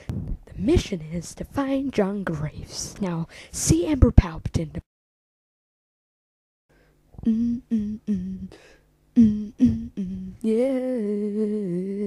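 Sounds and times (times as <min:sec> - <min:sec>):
person humming a tune: 0:07.2 - 0:12.0.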